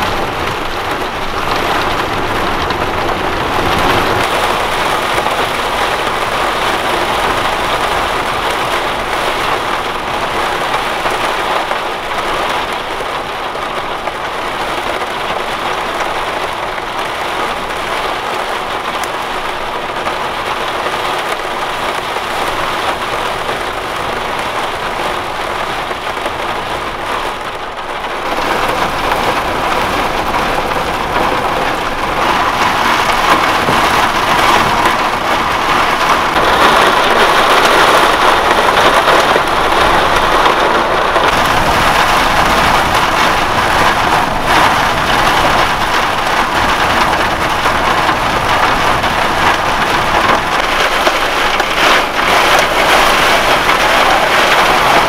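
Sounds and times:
heavy rain on van roof: 0:00.0 - 0:55.0.

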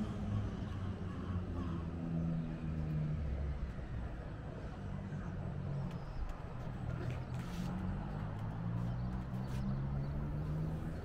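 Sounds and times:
low rumble of town traffic: 0:00.0 - 0:11.0.

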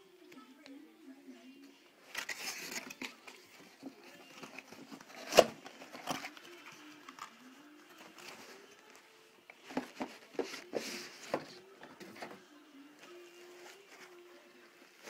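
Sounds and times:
packaging rustling: 0:02.0 - 0:12.4.

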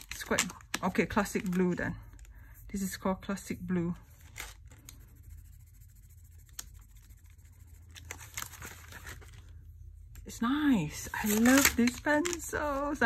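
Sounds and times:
coloured pencil scratching on paper: 0:04.8 - 0:08.4.

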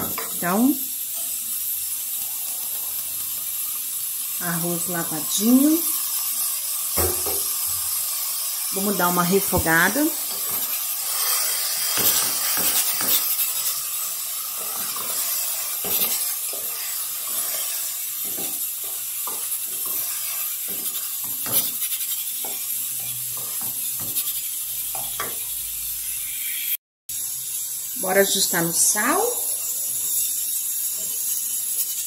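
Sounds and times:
rice sizzling in a pan: 0:00.0 - 0:32.0
spoon knocking against pan: 0:07.0 - 0:07.5
wooden spoon scraping a pan: 0:09.3 - 0:25.4.

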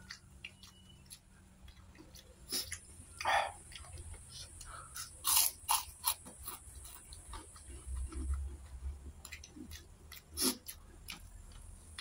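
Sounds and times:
lip smacks: 0:00.0 - 0:05.8, 0:09.2 - 0:11.2
wet chewing: 0:00.0 - 0:12.0.

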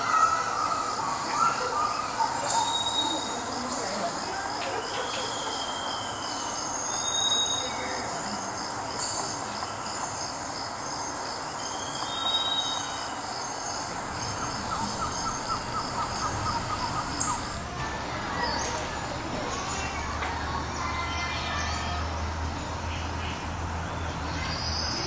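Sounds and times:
birds whistling calls: 0:00.0 - 0:20.2
background hum: 0:13.1 - 0:21.6.

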